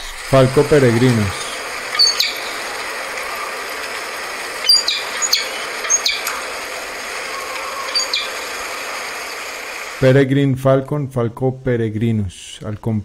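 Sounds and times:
falcon calls: 0.0s - 10.0s
field recording hiss: 0.0s - 13.0s.

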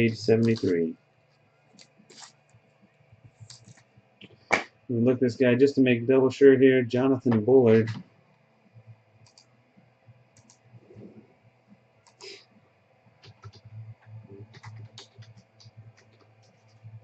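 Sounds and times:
low steady hum: 0.0s - 17.0s
keyboard and mouse clicks: 9.2s - 9.5s, 12.0s - 12.4s, 13.2s - 17.0s.

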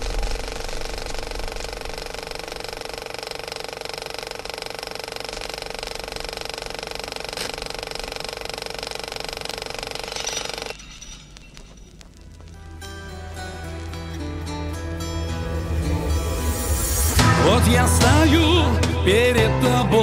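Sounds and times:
fast mechanical clatter: 0.0s - 11.8s
held steady tones: 0.0s - 17.2s.

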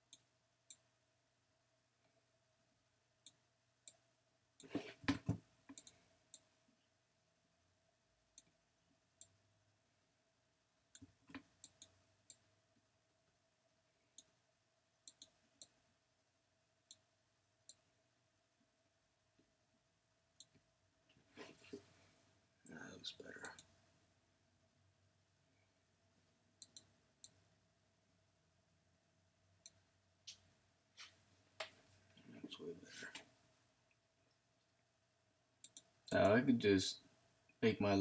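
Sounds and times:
computer mouse clicks: 5.7s - 6.5s, 11.0s - 12.4s, 15.1s - 15.7s, 26.6s - 27.4s, 35.6s - 36.3s.

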